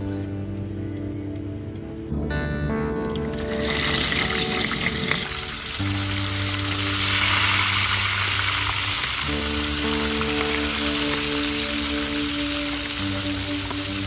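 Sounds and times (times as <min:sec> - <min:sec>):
background music: 0:00.0 - 0:14.0
fish sizzling in hot oil: 0:03.2 - 0:14.0.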